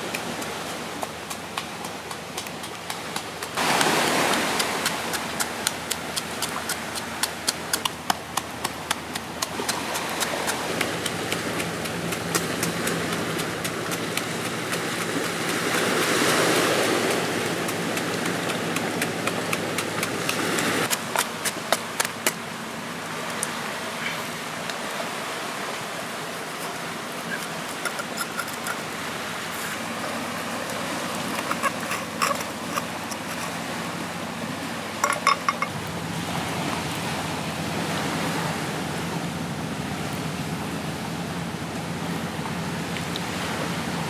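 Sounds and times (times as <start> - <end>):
sea surf on rocks: 0.0 - 44.0
cleaver knocking and tapping: 17.4 - 22.4, 31.2 - 33.6, 35.0 - 35.7.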